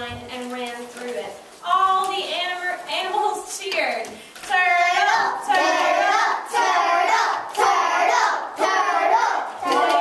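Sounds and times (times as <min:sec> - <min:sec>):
children chanting and cheering: 0:04.5 - 0:10.0.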